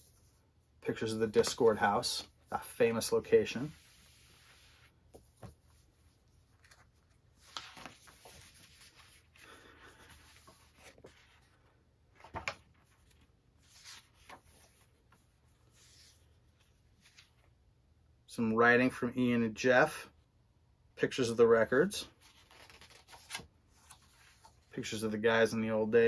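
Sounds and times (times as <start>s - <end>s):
paper pages turning: 3.0s - 17.5s, 22.2s - 24.7s.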